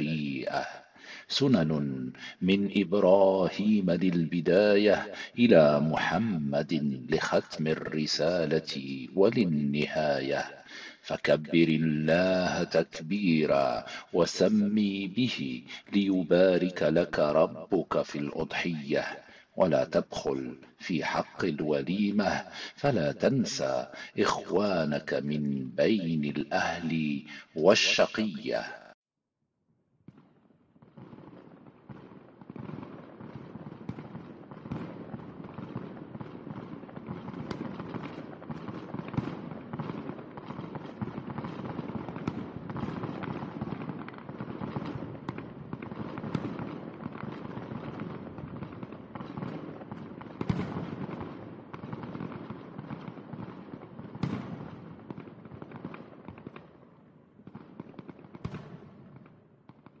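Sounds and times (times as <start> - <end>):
fireworks bangs: 30.0 - 60.0
fireworks crackling and popping: 30.0 - 60.0.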